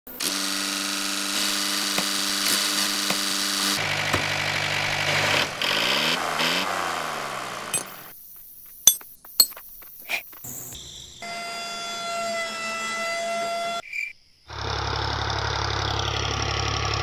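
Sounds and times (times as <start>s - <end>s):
small electric motor whining: 0.1s - 8.0s
metal hitch clinks: 8.9s - 9.6s.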